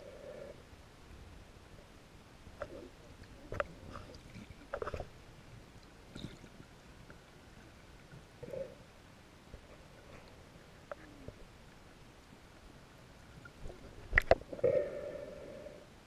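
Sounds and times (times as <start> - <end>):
underwater knocks and clicks: 3.5 - 5.1, 13.5 - 14.6.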